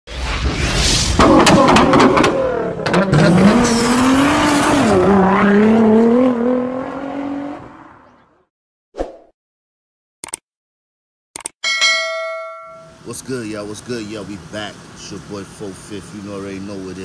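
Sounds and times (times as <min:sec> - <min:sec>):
car engine revving: 0:01.2 - 0:08.2.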